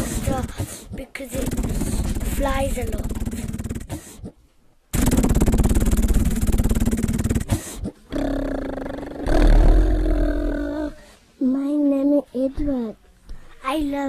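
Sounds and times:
child imitating helicopter: 0:00.0 - 0:04.2, 0:06.6 - 0:11.0.

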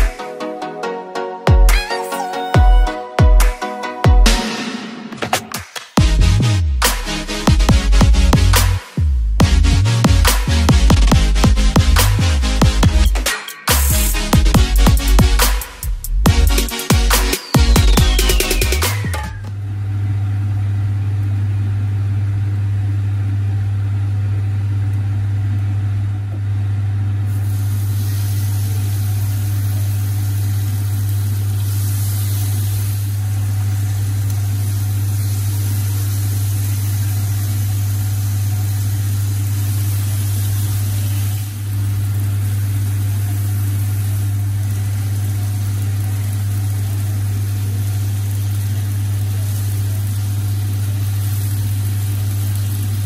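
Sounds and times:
bacon sizzling on griddle: 0:27.3 - 0:53.0.

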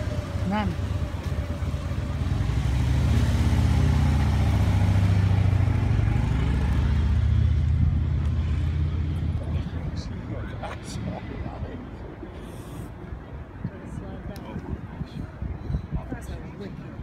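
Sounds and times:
vehicle engine passing by: 0:00.0 - 0:09.9.

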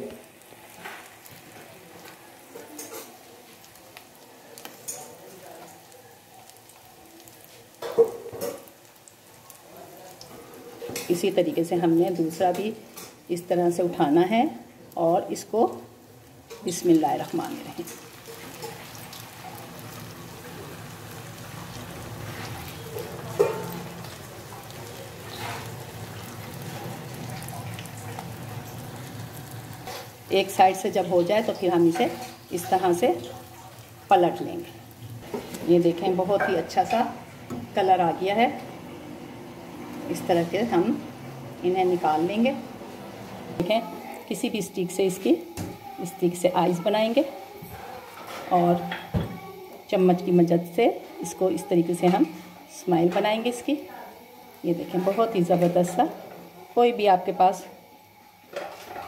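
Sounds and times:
food deep-frying in oil: 0:00.0 - 0:59.0.

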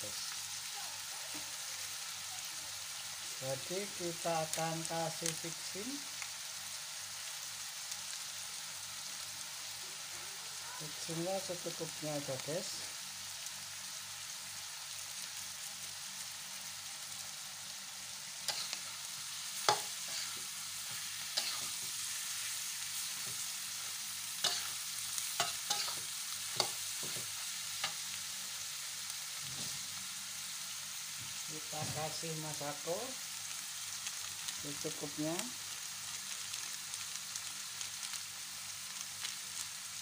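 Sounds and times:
stir-fry sizzling in a wok: 0:00.0 - 0:40.0
metal spatula scraping a pan: 0:18.5 - 0:23.4, 0:24.4 - 0:28.0.

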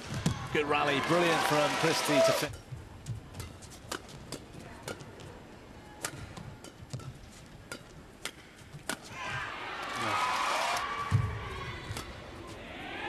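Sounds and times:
crowd cheering and shouting: 0:00.1 - 0:02.5, 0:09.1 - 0:13.0
racket hitting shuttlecock: 0:02.5 - 0:05.3, 0:06.0 - 0:09.2, 0:11.0 - 0:12.3.

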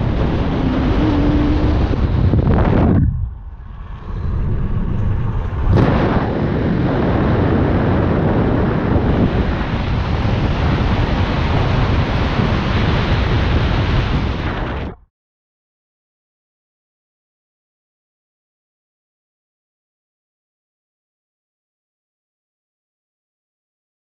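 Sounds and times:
muffled road noise in car: 0:00.0 - 0:07.8
wind buffeting microphone: 0:00.0 - 0:15.0.

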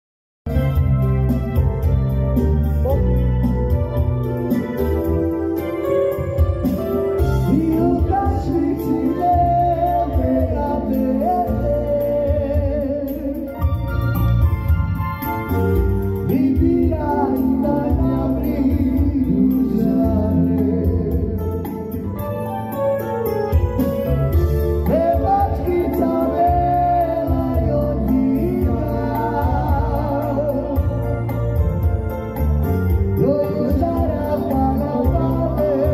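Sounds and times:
electronic keyboard chords and bass: 0:00.5 - 0:35.9
man singing into microphone: 0:07.1 - 0:13.9, 0:16.2 - 0:22.1, 0:24.6 - 0:31.6, 0:33.1 - 0:35.9.

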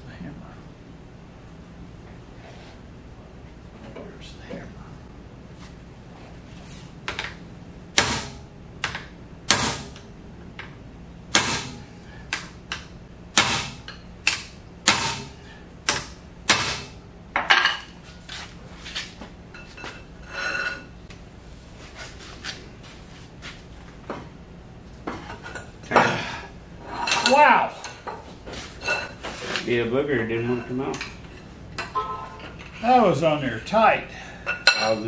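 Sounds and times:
hammer striking metal: 0:31.9 - 0:32.5.

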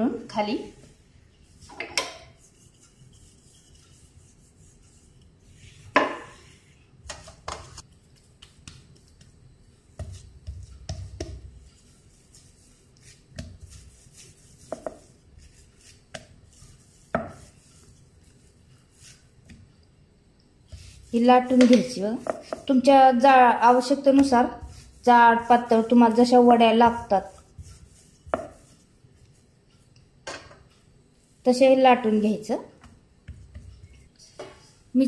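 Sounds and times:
hands patting dough on wood: 0:07.0 - 0:19.7, 0:20.7 - 0:22.9, 0:23.8 - 0:29.5, 0:32.6 - 0:34.7.

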